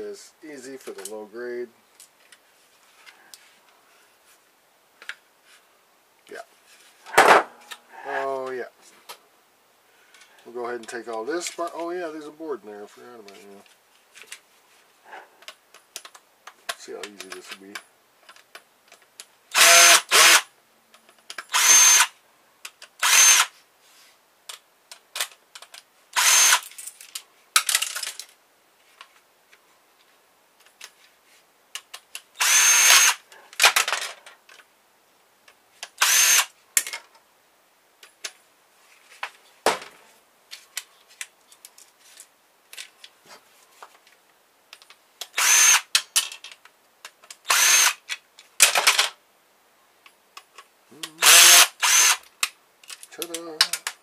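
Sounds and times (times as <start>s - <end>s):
power drill motor whine: 19.6s - 20.4s, 21.5s - 22.1s, 23.0s - 23.5s, 26.2s - 26.6s, 32.4s - 33.2s, 36.0s - 36.5s, 45.4s - 45.9s, 47.5s - 48.0s, 51.2s - 52.2s
plastic parts clattering: 26.6s - 28.4s, 33.6s - 34.6s, 45.9s - 47.4s, 48.1s - 49.2s.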